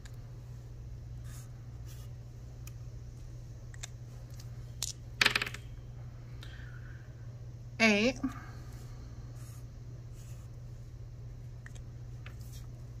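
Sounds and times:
plastic dice clattering on paper: 4.8s - 5.6s.

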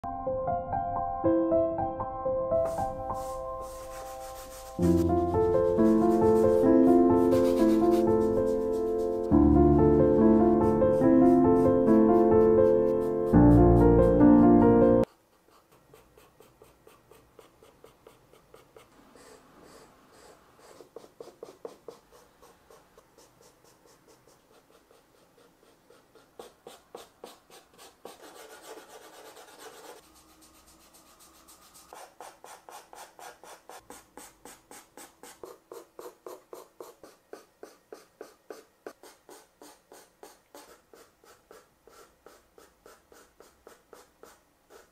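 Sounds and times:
pastel pencil scratching on paper: 2.6s - 44.9s.

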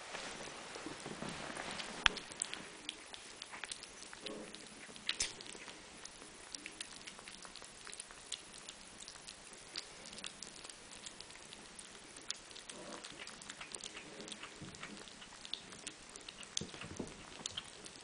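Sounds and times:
kittens chewing and licking: 0.0s - 18.0s.

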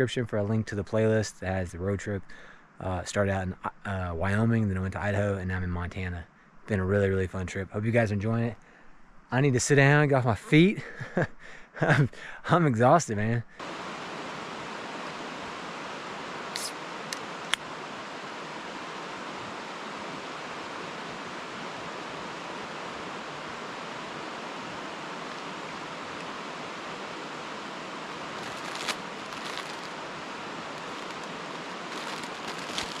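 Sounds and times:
stream water running: 13.6s - 33.0s.

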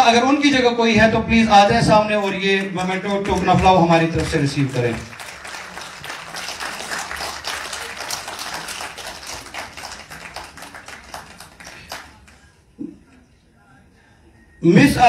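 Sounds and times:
audience clapping: 1.8s - 12.6s.

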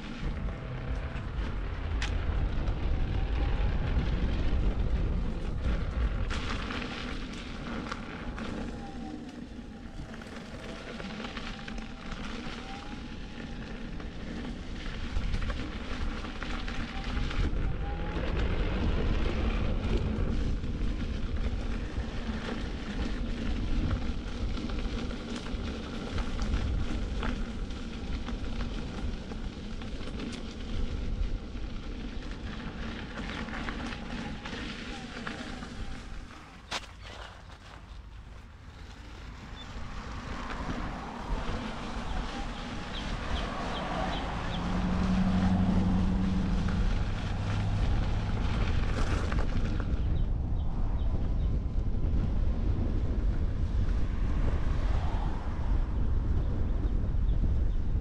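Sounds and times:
wind rumbling on microphone: 0.0s - 58.0s
tyre crackling over boards and gravel: 32.0s - 39.5s.

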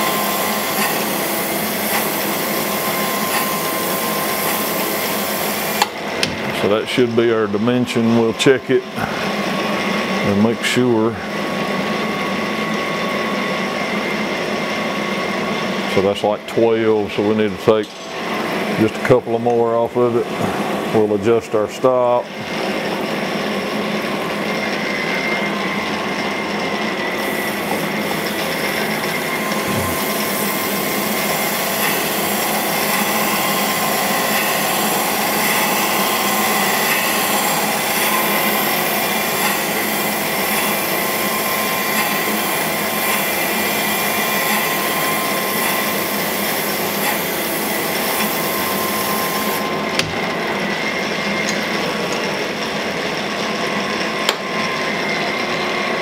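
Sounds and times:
grinding wheel hiss: 0.0s - 6.0s, 22.0s - 53.1s
grinding wheel whine: 0.0s - 56.0s.

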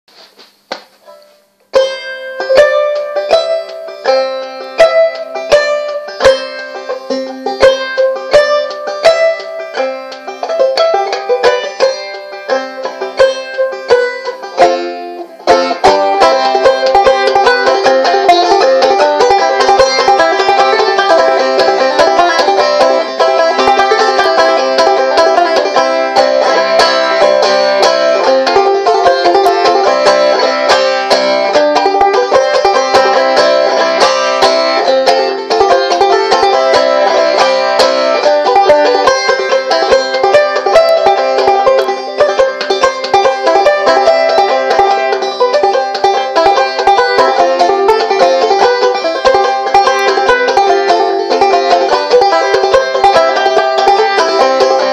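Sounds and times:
banjo plucking: 0.1s - 54.9s.

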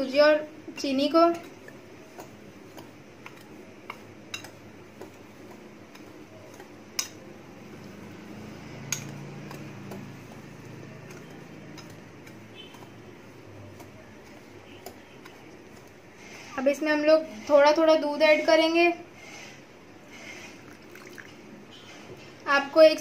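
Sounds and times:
whisk scraping in a bowl: 0.0s - 20.8s
whisk clicking against bowl: 0.7s - 7.3s, 8.8s - 16.0s.

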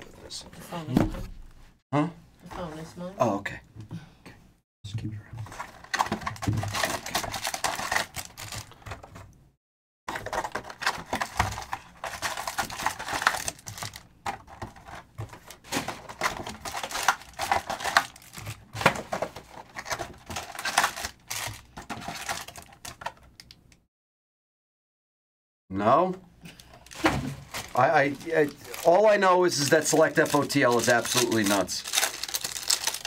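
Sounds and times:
card packs crinkling: 5.4s - 9.2s, 10.1s - 23.6s, 26.6s - 33.0s.

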